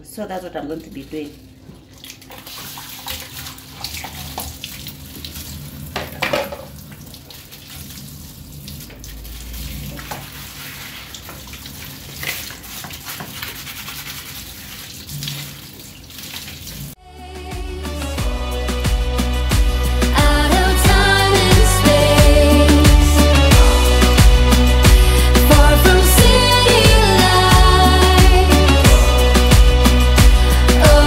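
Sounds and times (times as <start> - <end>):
tap running into sink: 5.9 - 6.8.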